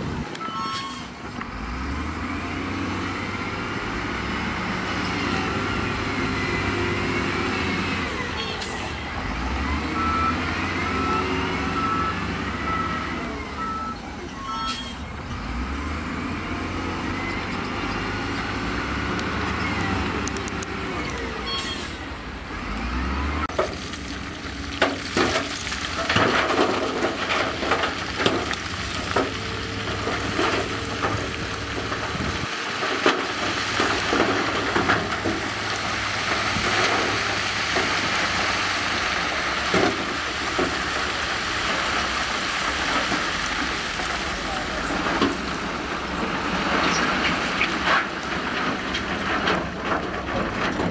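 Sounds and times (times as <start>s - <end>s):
diesel engine under load: 0.0s - 50.9s
rock and gravel clatter: 23.5s - 50.9s.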